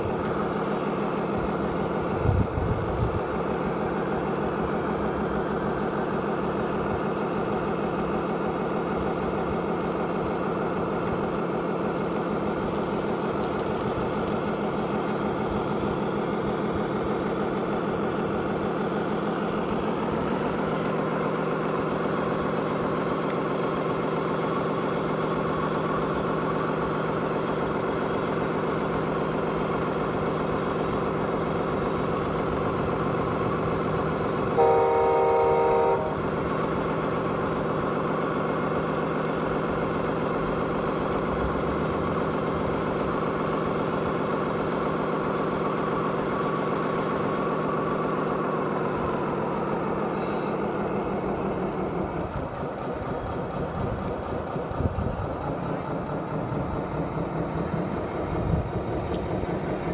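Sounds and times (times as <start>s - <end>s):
diesel engine sound module: 0.0s - 59.9s
truck horn: 34.5s - 36.3s.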